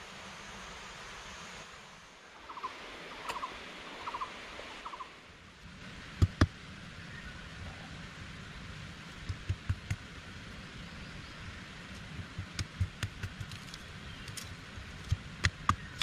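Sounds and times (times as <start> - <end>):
machete chopping wooden stick: 15.1 - 16.0.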